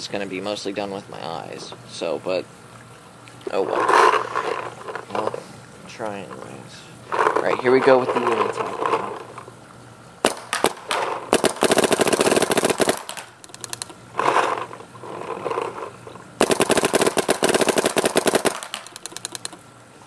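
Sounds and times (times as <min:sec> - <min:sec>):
paintball marker firing rapidly: 0:10.2 - 0:13.9, 0:16.4 - 0:19.5.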